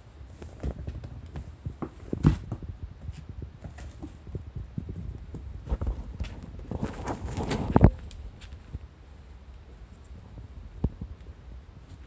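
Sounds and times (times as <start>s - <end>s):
kitten pattering on mats: 0.3s - 8.8s.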